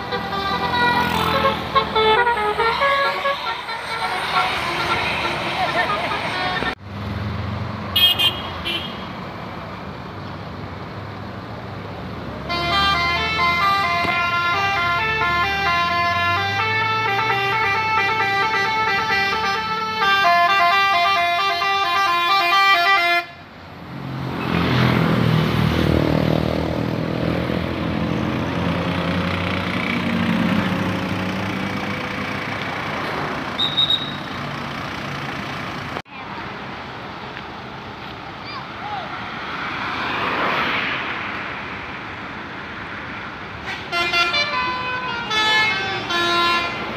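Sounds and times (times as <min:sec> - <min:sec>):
bus horn playing a tune: 0:00.0 - 0:06.8, 0:08.0 - 0:09.1, 0:12.4 - 0:23.4, 0:43.7 - 0:46.9
bus engine accelerating: 0:00.0 - 0:07.8, 0:23.8 - 0:38.5.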